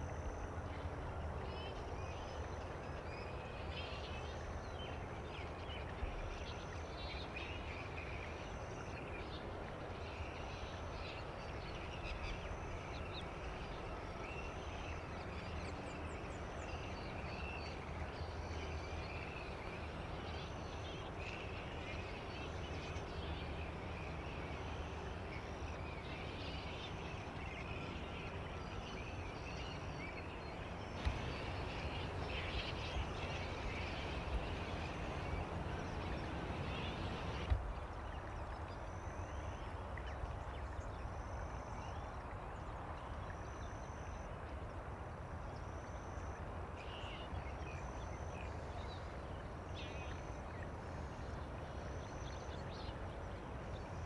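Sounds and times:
low background rumble: 0:25.9 - 0:38.6.

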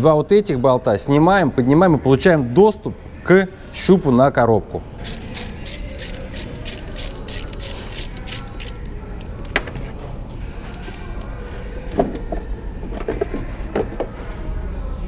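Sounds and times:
ratchet wrench clicking: 0:05.0 - 0:08.8.

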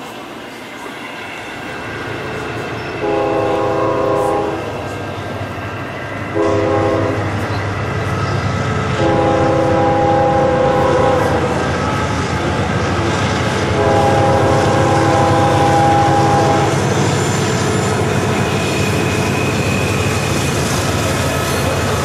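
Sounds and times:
multi-tone diesel horn: 0:03.0 - 0:04.7, 0:06.4 - 0:07.3, 0:09.0 - 0:11.6, 0:13.7 - 0:16.8.

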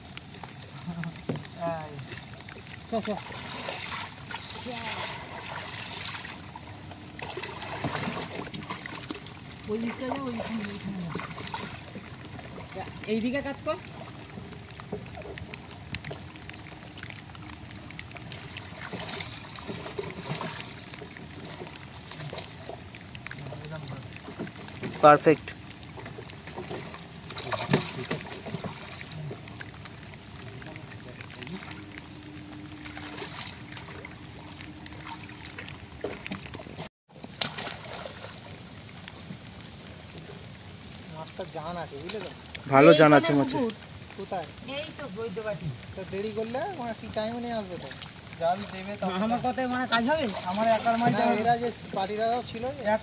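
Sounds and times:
water dripping: 0:00.0 - 0:53.0
water splashing and sloshing: 0:00.0 - 0:53.0
sharp splash: 0:02.9 - 0:06.6, 0:07.2 - 0:12.0, 0:18.3 - 0:22.7, 0:26.6 - 0:29.4, 0:32.8 - 0:38.7.

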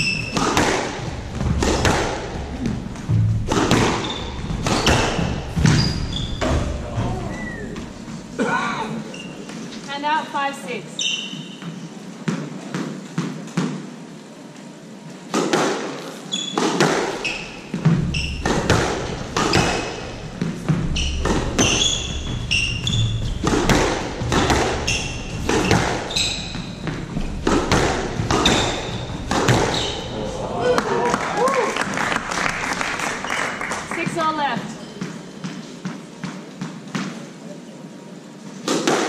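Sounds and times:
squash ball hits: 0:00.0 - 0:07.2, 0:11.6 - 0:13.9, 0:15.3 - 0:30.1, 0:34.9 - 0:37.2, 0:38.6 - 0:39.0
shoes squeaking on wooden floor: 0:00.0 - 0:12.5, 0:16.2 - 0:30.3, 0:33.2 - 0:36.8.

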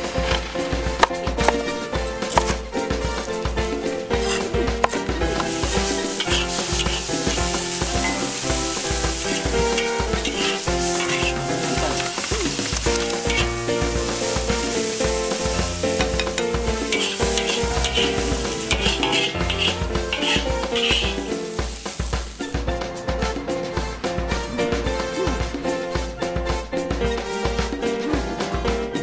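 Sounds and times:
ladle scraping a pan: 0:00.0 - 0:22.4
food sizzling in a wok: 0:00.0 - 0:26.0
background music with a beat: 0:00.0 - 0:29.0.

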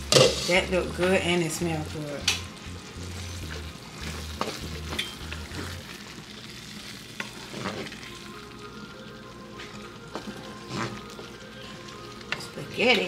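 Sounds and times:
sauce sizzling in a pan: 0:00.0 - 0:13.0
spoon scraping a pan: 0:00.1 - 0:00.7, 0:07.2 - 0:08.1, 0:10.5 - 0:13.0.

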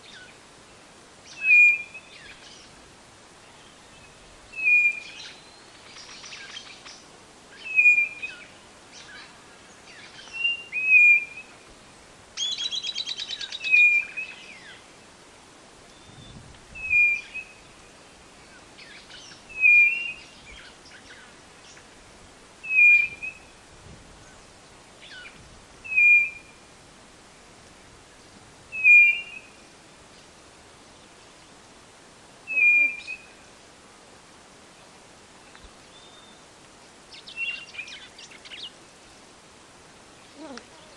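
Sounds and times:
bird whistled call: 0:01.3 - 0:02.4, 0:04.5 - 0:06.6, 0:07.6 - 0:08.5, 0:10.3 - 0:11.5, 0:12.4 - 0:14.7, 0:15.9 - 0:17.6, 0:19.5 - 0:21.2, 0:22.6 - 0:23.5, 0:25.1 - 0:26.6, 0:28.7 - 0:29.6, 0:32.5 - 0:33.3
rapid pulsed bird chatter: 0:05.0 - 0:10.5.

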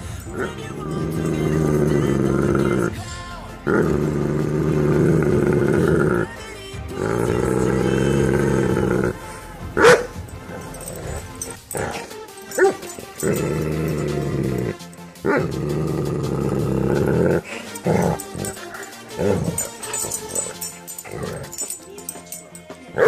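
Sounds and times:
background music: 0:00.0 - 0:23.0
dog barking: 0:09.8 - 0:14.2.

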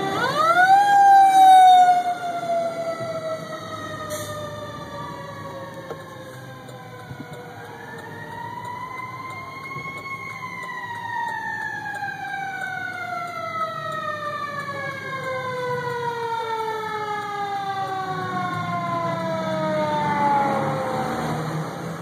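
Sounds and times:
fire engine siren wailing: 0:00.0 - 0:22.0
truck engine rumble: 0:00.0 - 0:22.0.

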